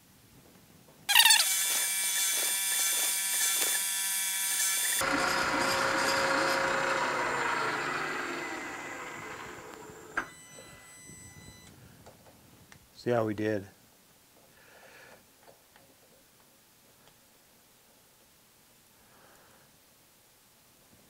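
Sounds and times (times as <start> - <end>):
milling machine whine: 1.1 - 11.7.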